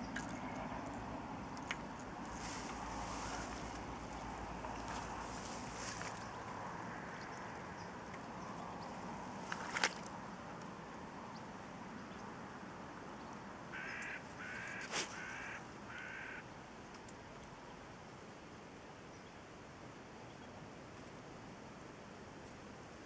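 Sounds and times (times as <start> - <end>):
faint steady hiss: 0.0 - 23.0
crow cawing: 13.7 - 16.4.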